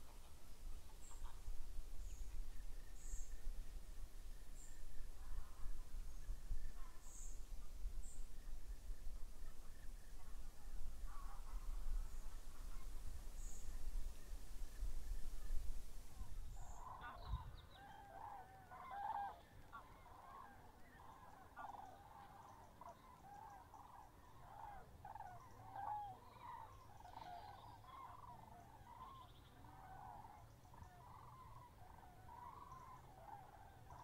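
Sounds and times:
flock of birds honking: 16.2s - 34.0s.

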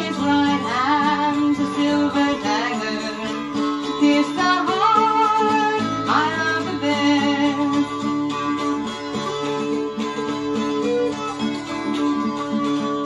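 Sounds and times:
plucked dulcimer melody: 6.6s - 13.0s.

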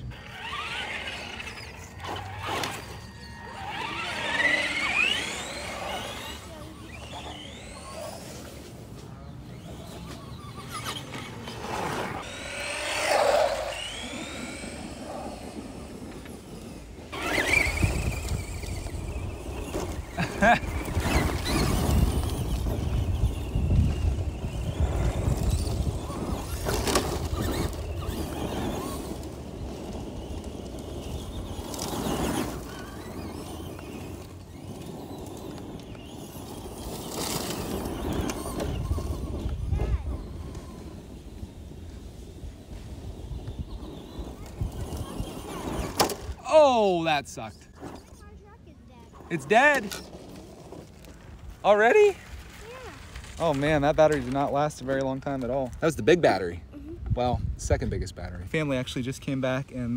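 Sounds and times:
electric motor whining: 0.0s - 46.4s
tyres churning wood chips: 0.0s - 56.6s
low wind rumble on microphone: 13.8s - 46.4s, 56.8s - 58.5s.

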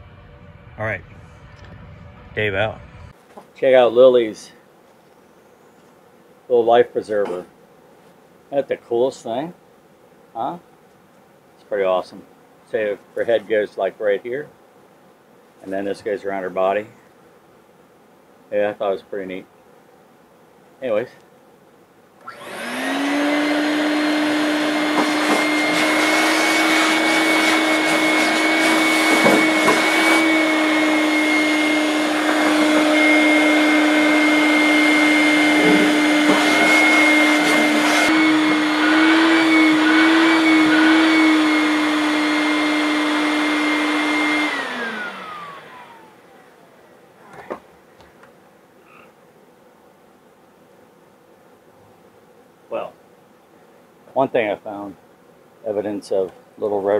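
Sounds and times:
shop vacuum whining: 22.2s - 47.6s.

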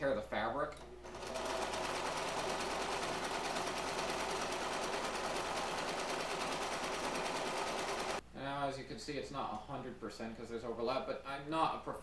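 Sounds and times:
sewing machine running: 1.0s - 8.2s.

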